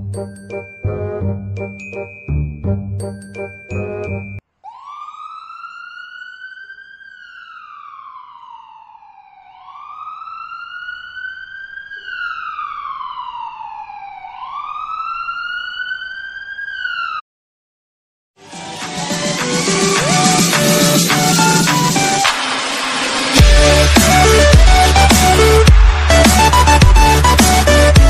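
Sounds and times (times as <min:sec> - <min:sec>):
police siren wailing: 0:04.6 - 0:17.2, 0:18.7 - 0:28.0.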